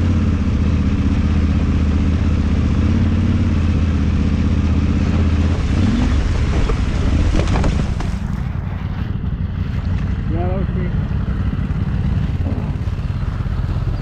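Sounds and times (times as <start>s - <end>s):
motorcycle engine running: 0.0s - 14.0s
water splashing: 3.7s - 8.7s.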